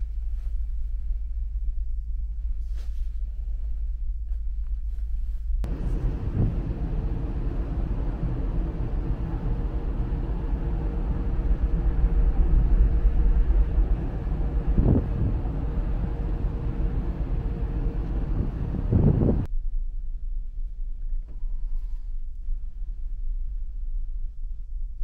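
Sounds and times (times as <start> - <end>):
faint steady hum: 0.0 - 25.0
ferry engines rumbling: 5.6 - 19.5.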